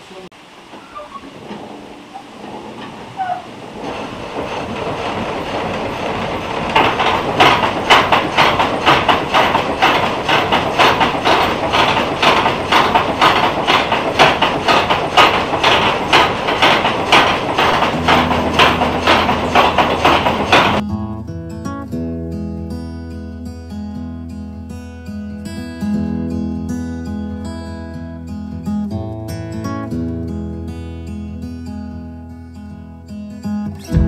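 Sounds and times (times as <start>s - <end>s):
saw frame clattering rhythmically: 3.7s - 20.8s.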